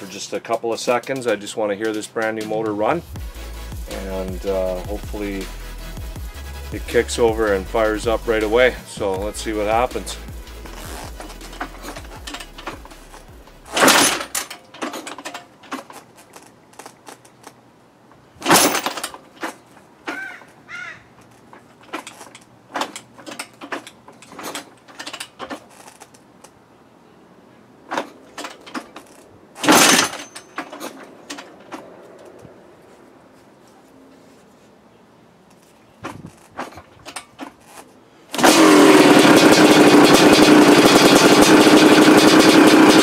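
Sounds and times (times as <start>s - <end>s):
engine turning over on kickstart: 3.1s - 15.9s, 18.4s - 19.2s, 29.6s - 31.5s, 38.3s - 43.0s.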